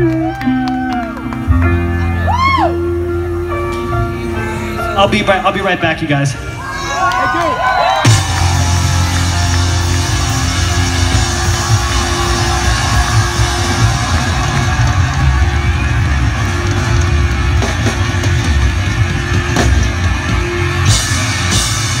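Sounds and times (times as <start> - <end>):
electric guitar: 0.0 - 5.0, 8.0 - 22.0
drum kit: 7.9 - 22.0.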